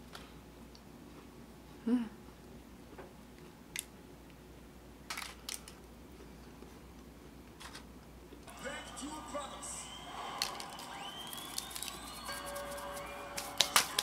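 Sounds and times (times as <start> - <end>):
crunching bites and chewing: 10.4 - 12.4
paper rustling: 10.4 - 14.0.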